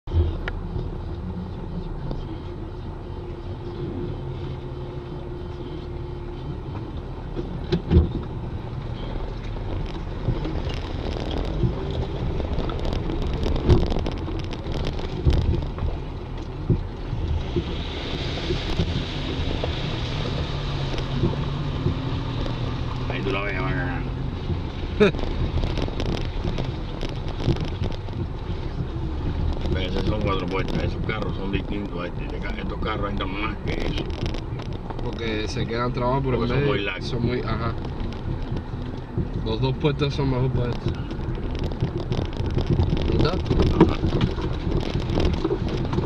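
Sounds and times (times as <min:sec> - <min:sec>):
vehicle engine running at low speed: 0:00.0 - 0:46.0
vehicle body knocking and rattling: 0:05.3 - 0:46.0.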